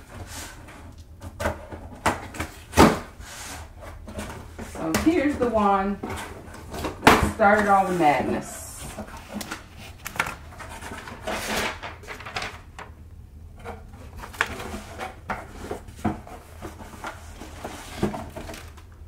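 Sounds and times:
cardboard box scrapes and rustles: 10.6s - 11.8s, 14.5s - 18.7s.

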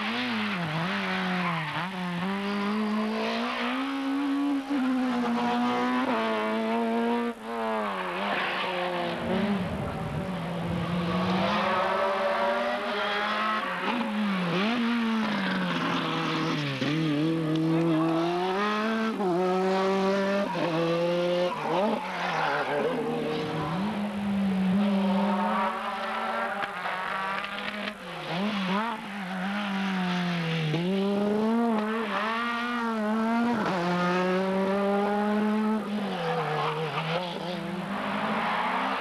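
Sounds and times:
rally car engines revving: 0.0s - 39.0s.

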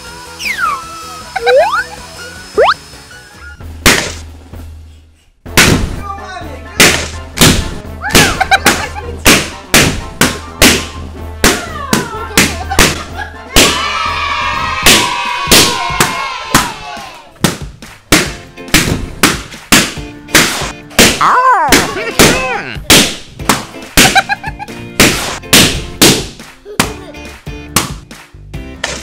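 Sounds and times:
background music: 0.0s - 29.0s
balloons popping: 17.4s - 27.0s, 27.8s - 28.1s.

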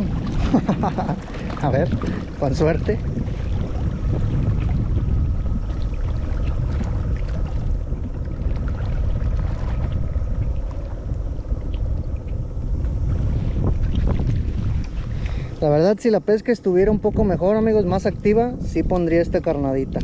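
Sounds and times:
wind buffeting microphone: 0.0s - 20.0s.

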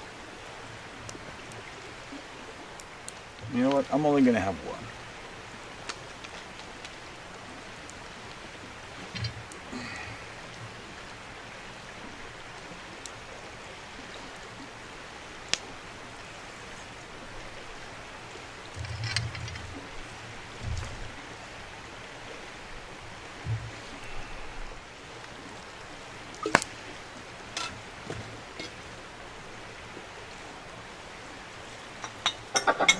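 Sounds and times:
river water flowing: 0.0s - 32.9s
campfire popping: 0.8s - 32.9s
steel pot knocking on grate: 27.6s - 28.8s.

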